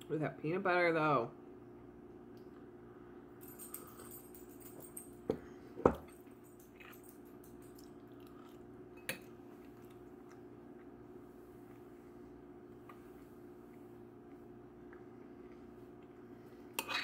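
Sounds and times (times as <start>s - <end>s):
steady low hum: 0.0s - 17.0s
fork on plate: 16.8s - 17.0s.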